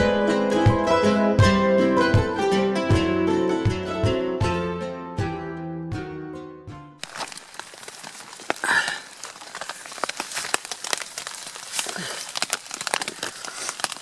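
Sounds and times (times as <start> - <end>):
rain drops ticking on tent: 7.0 - 14.0
tent nylon rustling: 7.0 - 14.0.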